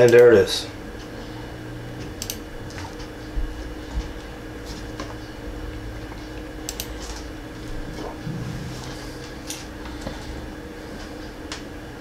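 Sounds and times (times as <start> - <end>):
electrical hum: 0.0 - 12.0
soft low thumps: 7.7 - 9.4.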